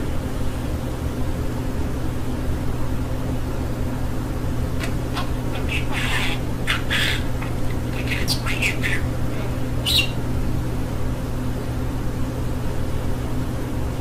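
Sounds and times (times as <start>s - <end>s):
budgerigar chirp: 4.8s - 10.2s
budgerigar chattering: 4.8s - 10.3s.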